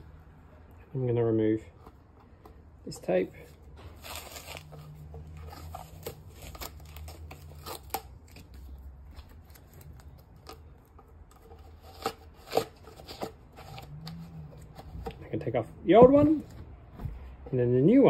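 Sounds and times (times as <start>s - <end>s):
adhesive tape peeling: 3.8s - 10.6s.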